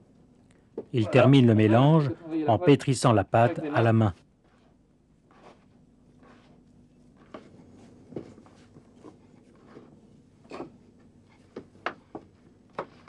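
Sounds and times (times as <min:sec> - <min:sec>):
hands kneading sticky paste: 0:04.3 - 0:13.0.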